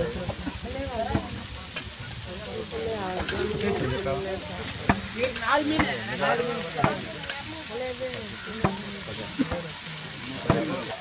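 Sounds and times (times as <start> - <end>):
fish sizzling on a griddle: 0.0 - 11.0
metal spatula striking griddle: 3.1 - 4.1, 4.7 - 7.5, 8.4 - 9.6.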